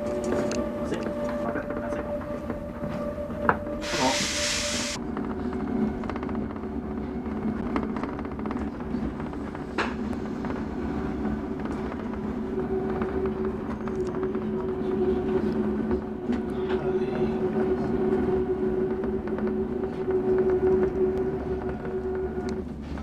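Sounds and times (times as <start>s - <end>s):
electric train rumbling: 0.0s - 23.0s
hiss: 3.8s - 5.0s.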